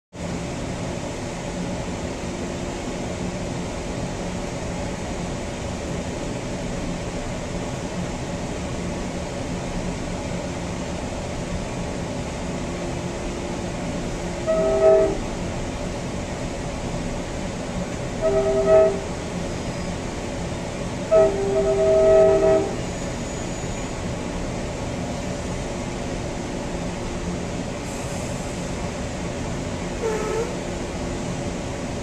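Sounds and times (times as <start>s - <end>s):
train rumbling on rails: 0.1s - 32.0s
train air horn blast: 14.4s - 15.4s, 18.2s - 19.2s, 21.1s - 23.6s, 30.0s - 30.6s.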